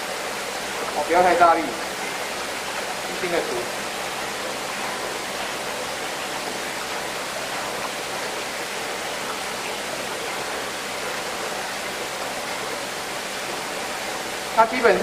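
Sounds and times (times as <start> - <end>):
running water rushing: 0.0 - 15.0.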